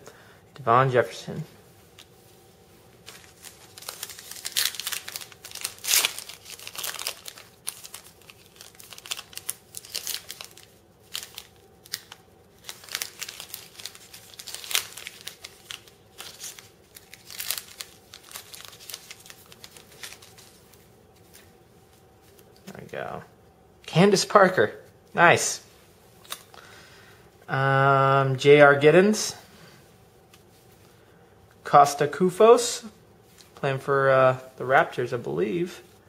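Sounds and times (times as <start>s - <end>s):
wrapper ripping: 3.0s - 20.6s
plastic wrapper crinkling: 3.0s - 21.5s.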